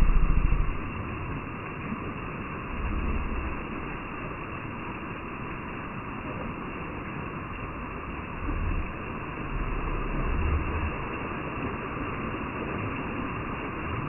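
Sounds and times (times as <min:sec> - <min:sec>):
low rumbles on microphone: 0:00.0 - 0:01.4, 0:02.6 - 0:04.1
waterfall spattering into pool: 0:00.0 - 0:14.0.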